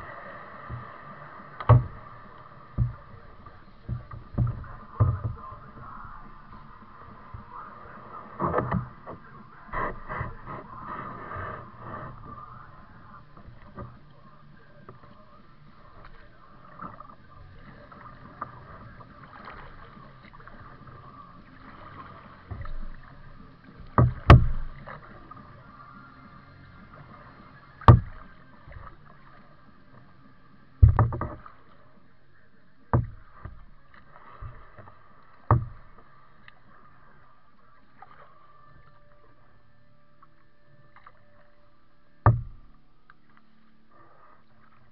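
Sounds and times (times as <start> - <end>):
water and paddle strokes: 0.0 - 44.9
knocks on plastic hull: 2.8 - 3.1, 3.9 - 5.4, 24.0 - 24.8, 27.9 - 28.2, 30.8 - 31.4, 32.9 - 33.6, 35.5 - 35.8, 42.2 - 42.7.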